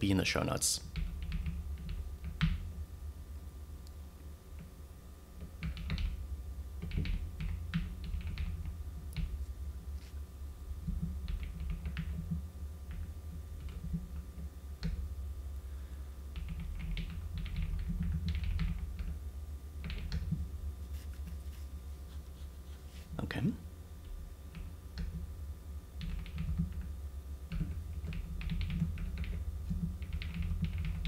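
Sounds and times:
steady low hum: 0.0 - 31.0
typing on keyboard: 0.9 - 2.6, 5.5 - 6.2, 6.8 - 9.3, 10.9 - 14.2, 16.4 - 19.2, 19.8 - 20.4, 26.0 - 26.9, 27.5 - 31.0.

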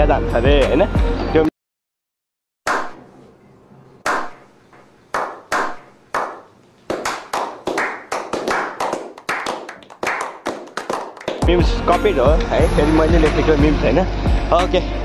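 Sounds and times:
hands clapping with echo: 5.1 - 11.6.

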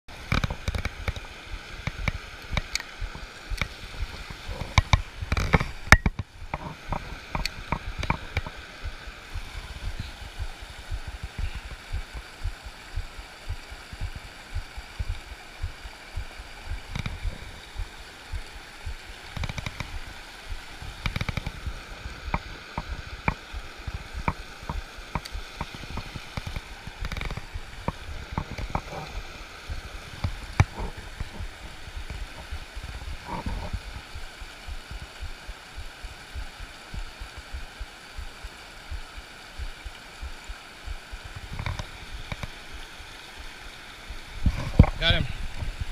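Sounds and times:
river water rushing over rocks: 0.1 - 45.9
knocks and low thumps: 0.3 - 42.6, 44.1 - 45.9.

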